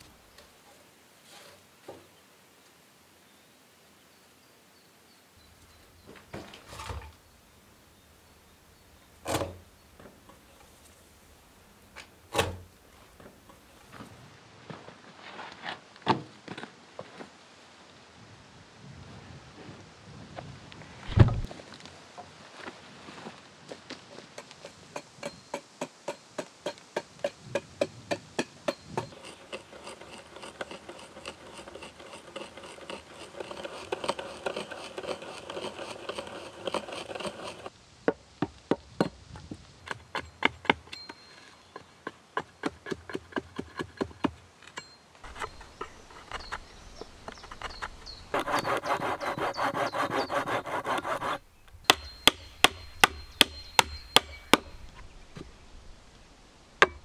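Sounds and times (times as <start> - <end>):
rasping scraping wood: 29.0 - 37.7, 45.2 - 54.9
hatchet knocking on wood: 51.8 - 54.7.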